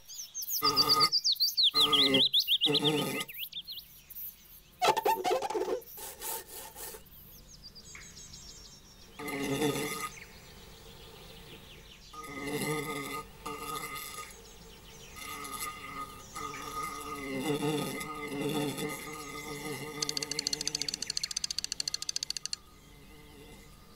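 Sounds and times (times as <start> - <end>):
high squeaky chirps: 4.8 - 6.0, 20.0 - 22.6
cartoon buzzing bursts: 17.1 - 22.6.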